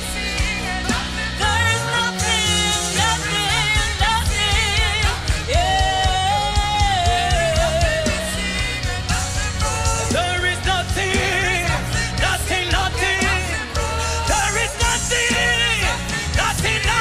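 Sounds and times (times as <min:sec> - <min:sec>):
woman singing into a microphone: 0:00.0 - 0:11.8
band with bass and drums: 0:00.0 - 0:17.0.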